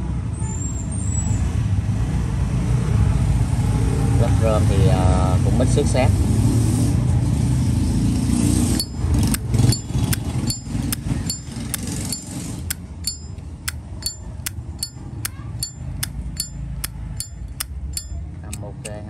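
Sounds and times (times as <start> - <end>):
traffic hum: 7.0 - 19.0.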